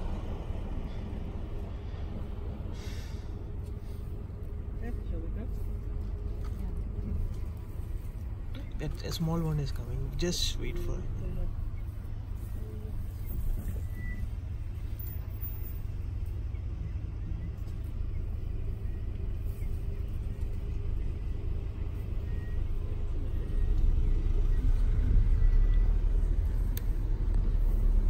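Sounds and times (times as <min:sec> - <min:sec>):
vehicle engine idling: 0:00.0 - 0:28.0.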